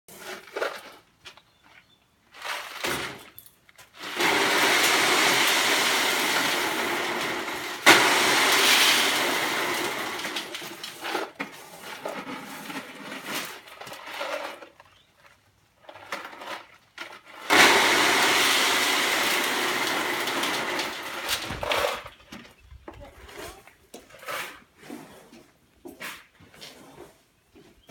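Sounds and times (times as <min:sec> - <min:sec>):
stones rattling down metal chute: 0:02.4 - 0:15.0, 0:15.8 - 0:22.3
loud clatter: 0:04.0 - 0:14.6, 0:16.1 - 0:22.1.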